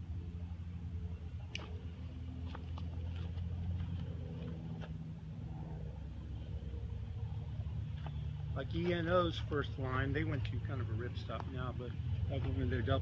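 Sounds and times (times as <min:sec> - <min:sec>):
steady low hum: 0:00.0 - 0:13.0
faint clicks and rustles: 0:01.4 - 0:05.1.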